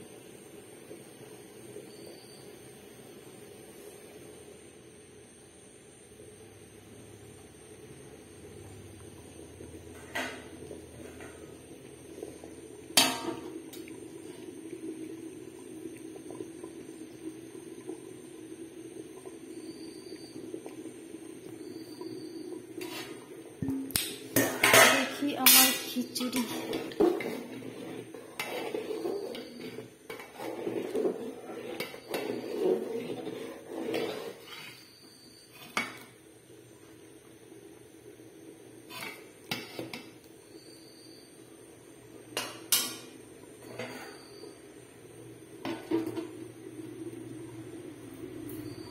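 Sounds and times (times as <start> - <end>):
pot of food bubbling: 0.0 - 48.9
ladle stirring and scraping in pot: 19.2 - 36.2, 38.8 - 40.2.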